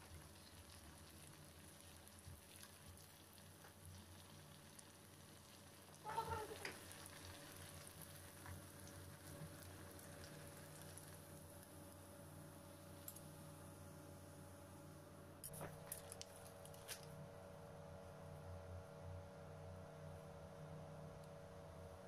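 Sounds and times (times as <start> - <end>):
pastries sizzling in hot oil: 0.0 - 14.4.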